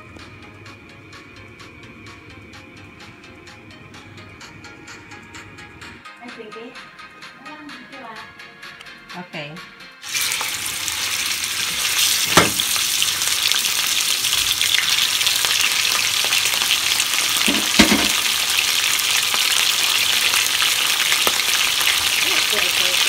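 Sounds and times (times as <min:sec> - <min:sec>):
meat sizzling in hot oil: 0:10.0 - 0:23.0.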